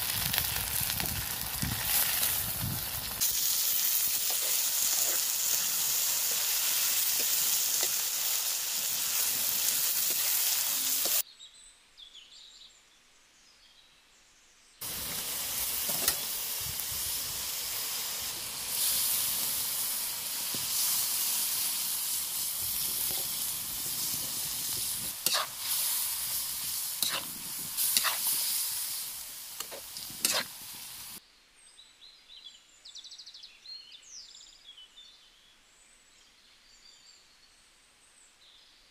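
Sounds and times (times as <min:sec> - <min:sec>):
chicken sizzling in oil: 0:00.0 - 0:11.2, 0:14.8 - 0:31.2
metal spoon stirring in pan: 0:03.4 - 0:08.2, 0:24.4 - 0:29.0, 0:29.6 - 0:30.6
faint birdsong: 0:03.8 - 0:14.8, 0:31.2 - 0:38.9.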